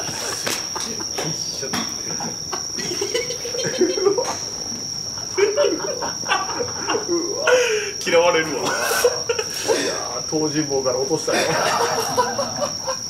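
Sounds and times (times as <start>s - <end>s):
crickets trilling: 0.0s - 13.0s
man laughing and exclaiming: 5.4s - 8.0s.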